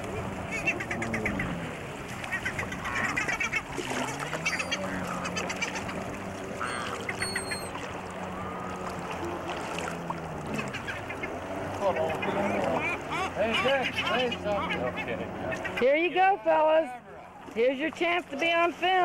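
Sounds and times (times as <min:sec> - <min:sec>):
gulls squawking: 0:00.4 - 0:08.5, 0:10.4 - 0:16.1.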